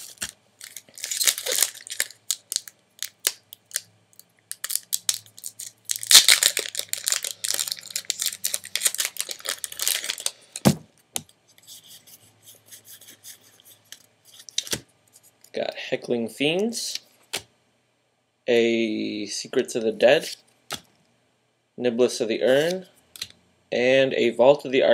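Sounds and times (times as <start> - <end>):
cards rustling: 0.0 - 3.8, 4.5 - 10.8
foil wrapper crinkling and tearing: 0.0 - 3.8, 4.5 - 10.7.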